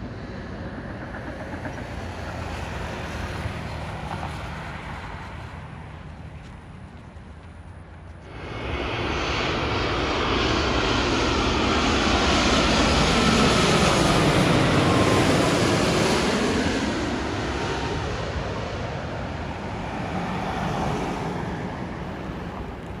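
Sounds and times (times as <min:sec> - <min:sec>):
jet rumble passing overhead: 0:00.0 - 0:23.0
jet engine whine falling in pitch: 0:08.2 - 0:23.0.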